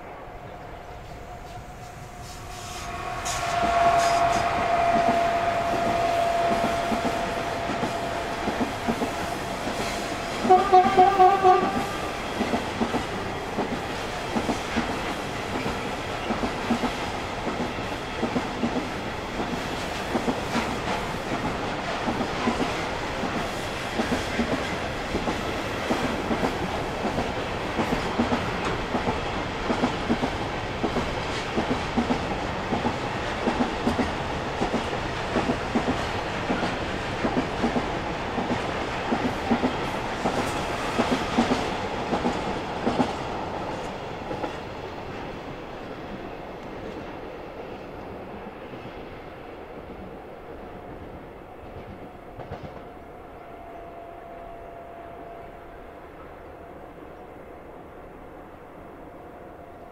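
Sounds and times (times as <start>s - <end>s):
train wheels clicking on rail joints: 1.0s - 44.9s, 51.6s - 52.9s
train horn blast: 1.4s - 12.3s.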